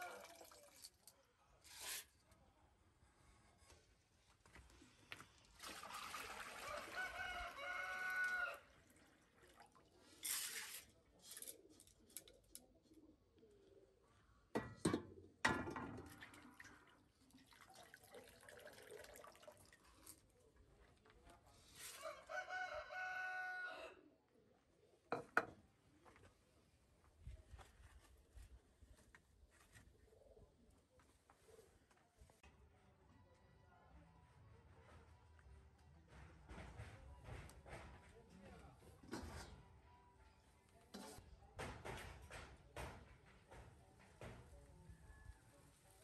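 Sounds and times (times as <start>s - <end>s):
rooster crowing: 6.6s - 8.7s, 21.9s - 24.0s
dishes and metal basin clattering: 14.6s - 16.4s.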